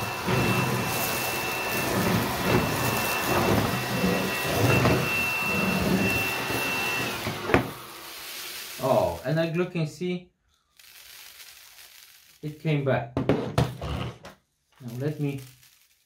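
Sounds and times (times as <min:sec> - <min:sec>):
stick vacuum running: 0:00.0 - 0:09.2.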